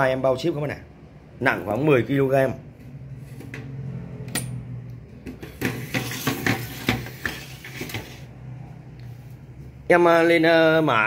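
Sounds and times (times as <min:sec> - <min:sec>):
hard objects clattering and knocking: 0:05.2 - 0:08.3.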